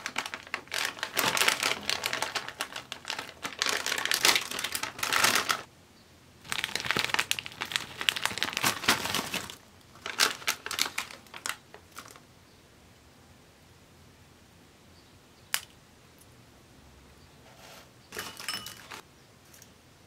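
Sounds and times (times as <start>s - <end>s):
snack bag crinkling: 0.0s - 5.7s, 6.5s - 12.2s.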